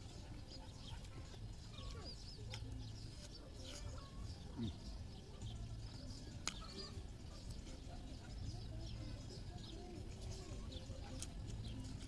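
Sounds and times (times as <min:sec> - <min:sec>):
small birds chirping: 0:00.0 - 0:12.0
faint clicks from eating: 0:06.2 - 0:07.8.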